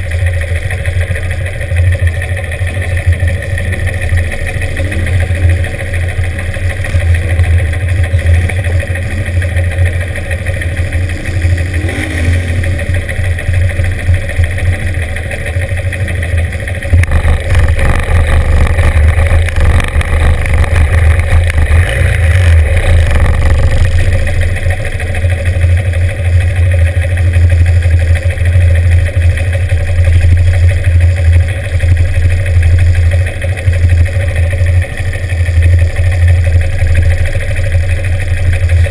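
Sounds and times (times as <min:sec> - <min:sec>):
motorcycle engine revving: 0:00.0 - 0:38.9
motorcycle engines idling: 0:00.0 - 0:38.9.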